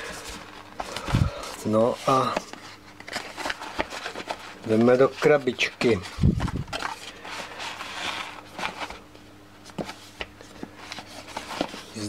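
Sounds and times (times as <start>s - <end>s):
cardboard box scrapes and rustles: 2.0s - 9.0s.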